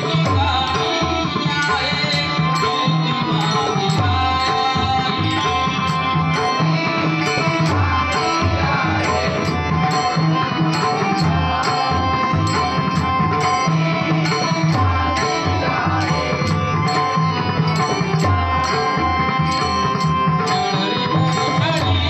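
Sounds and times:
hand drums beating slow rhythm: 0.0 - 22.0
harmonium holding notes: 0.0 - 22.0
small hand cymbals clashing: 16.9 - 21.9.

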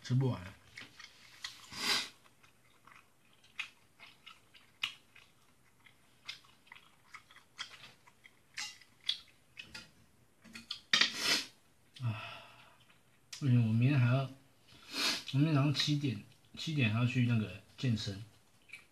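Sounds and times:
person chewing food: 0.6 - 11.1, 11.9 - 13.4, 18.4 - 18.9.

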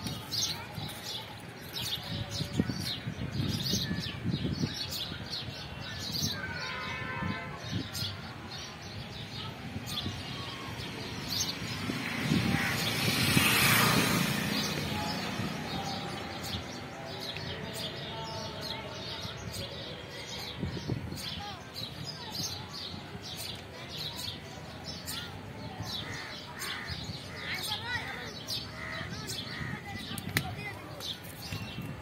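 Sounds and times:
broad rushing noise: 8.6 - 18.1.

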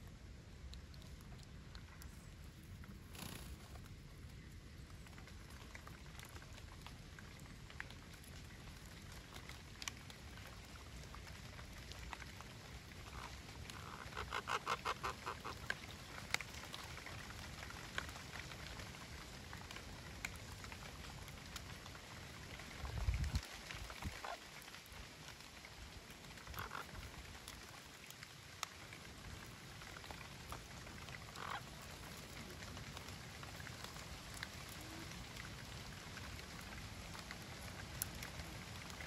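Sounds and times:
low steady background noise: 0.0 - 39.0
parrot calling rapidly: 13.8 - 15.4, 31.4 - 31.6.

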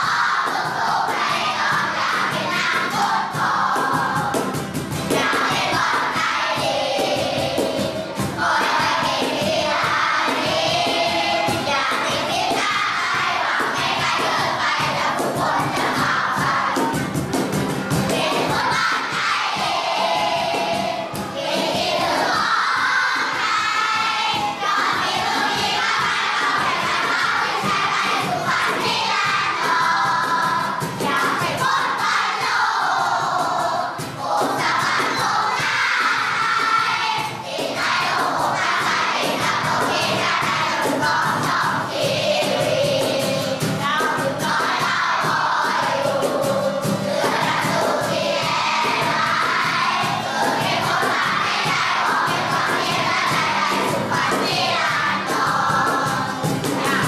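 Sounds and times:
backing music with steady beat: 0.0 - 57.0
children singing together: 0.0 - 57.0.

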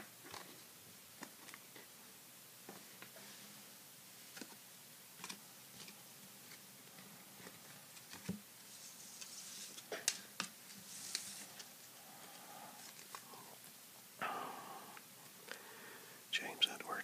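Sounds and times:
cards rustling: 7.4 - 11.8, 12.8 - 13.3.

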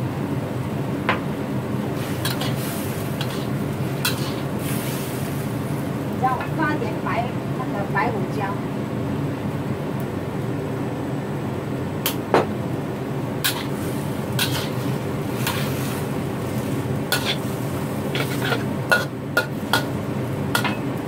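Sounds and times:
steady low hum: 0.0 - 21.0
metal spatula scraping a wok: 2.0 - 5.4, 13.4 - 20.0.

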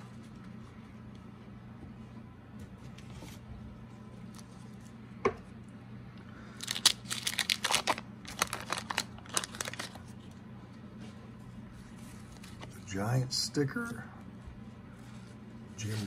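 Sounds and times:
card wrapper tearing and crinkling: 6.6 - 10.1.

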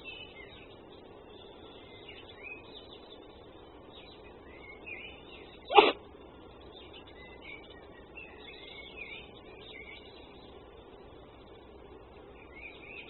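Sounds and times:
fox sneezing: 5.7 - 6.0.

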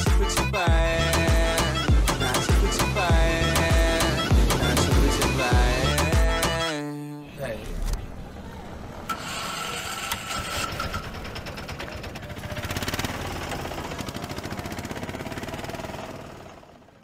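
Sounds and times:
motorcycle engine pulsing: 0.0 - 6.7, 7.7 - 17.0.

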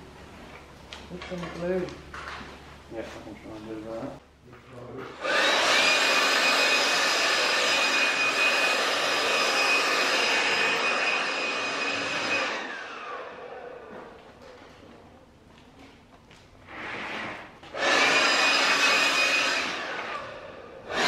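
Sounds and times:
electric blower whining: 5.2 - 14.1, 16.7 - 21.0.

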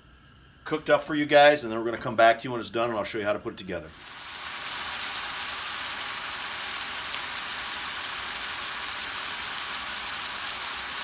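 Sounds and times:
meat sizzling in a skillet: 3.9 - 11.0.

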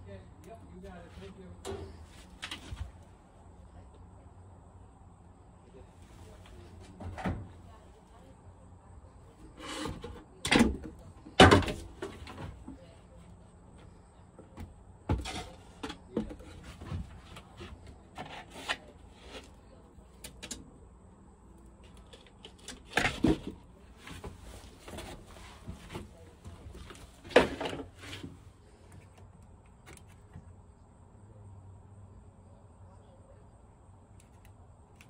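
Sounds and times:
objects knocking and rustling: 9.6 - 12.9, 21.9 - 28.4.

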